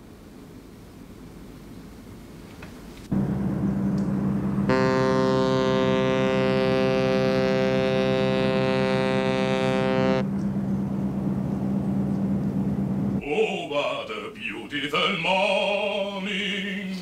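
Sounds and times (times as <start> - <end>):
ship's horn long blast: 3.1 - 10.4
deep steady horn tone: 3.1 - 13.2.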